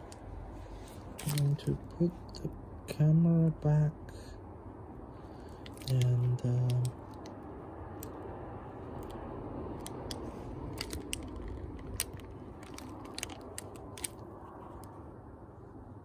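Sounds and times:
camera handling rumble: 0:01.2 - 0:01.5, 0:05.5 - 0:07.4, 0:09.8 - 0:15.0.

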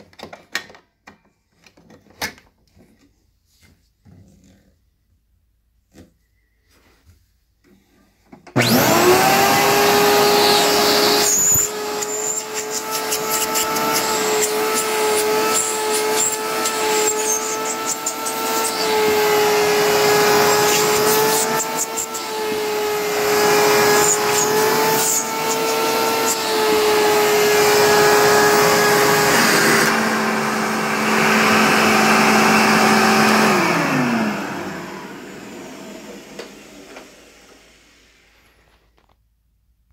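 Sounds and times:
vacuum cleaner motor whining: 0:08.5 - 0:38.8
vacuum motor winding down: 0:08.6 - 0:38.4.

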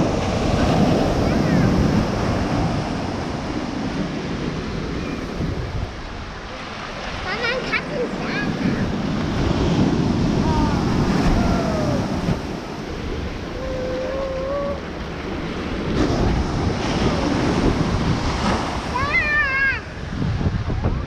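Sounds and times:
waves breaking on sand: 0:00.0 - 0:21.0
gliding voice-like calls: 0:13.4 - 0:14.9.

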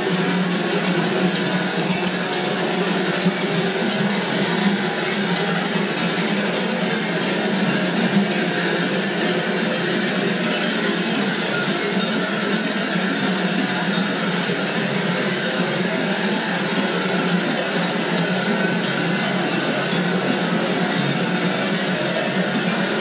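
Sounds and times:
large metal bells clanging: 0:00.1 - 0:23.0.

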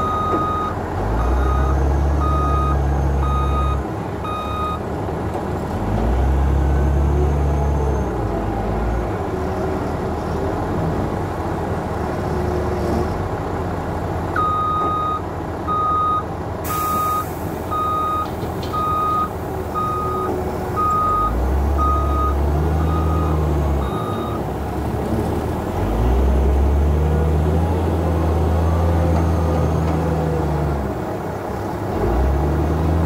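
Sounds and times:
diesel engine revving: 0:00.0 - 0:14.7, 0:15.4 - 0:33.0
reverse alarm beeping: 0:16.8 - 0:24.4.

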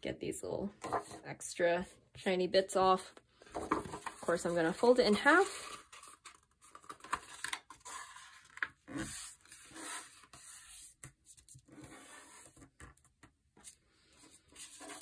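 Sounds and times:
stiff paper rustling and scraping: 0:03.5 - 0:10.9, 0:13.6 - 0:15.0.

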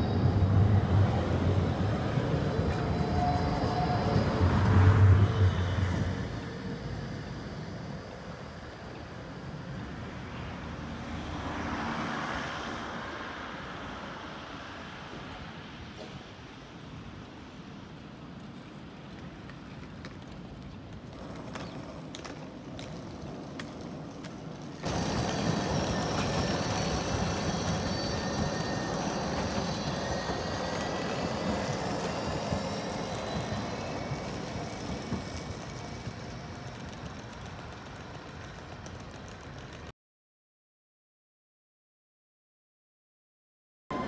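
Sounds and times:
tram rumbling on rails: 0:00.0 - 0:39.9.

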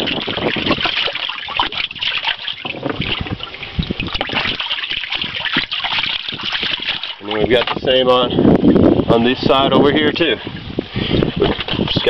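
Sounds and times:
fish splashing in water: 0:00.0 - 0:07.8.

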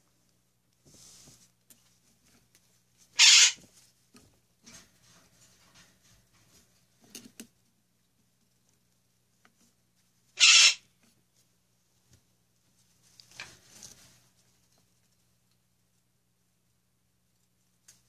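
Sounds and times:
bird screaming: 0:03.2 - 0:03.6, 0:10.4 - 0:10.8
faint bird call: 0:10.4 - 0:10.8.

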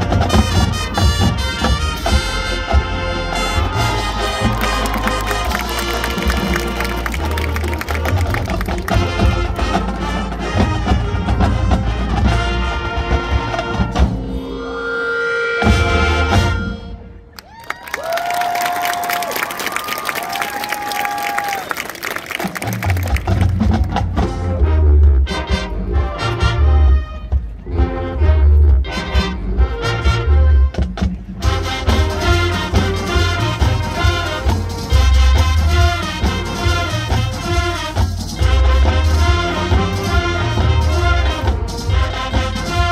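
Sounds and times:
drumline sharp strikes: 0:00.0 - 0:14.4, 0:22.4 - 0:27.7, 0:28.7 - 0:42.9
marching band brass: 0:00.0 - 0:17.4, 0:18.0 - 0:42.9.

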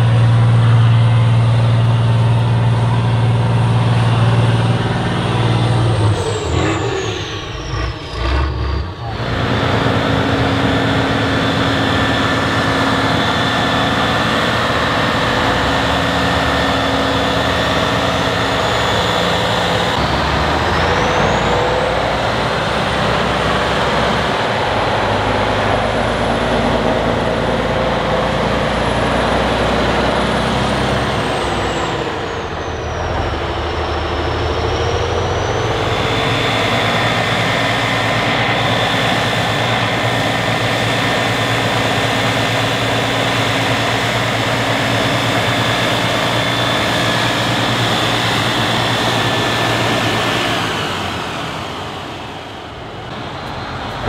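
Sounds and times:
high whine: 0:00.0 - 0:27.8
diesel truck engine running hard: 0:00.0 - 0:54.0.

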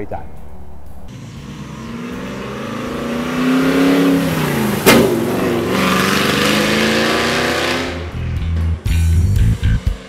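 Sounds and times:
exhaust crack: 0:00.8 - 0:08.2
car engine accelerating past: 0:01.1 - 0:08.2.

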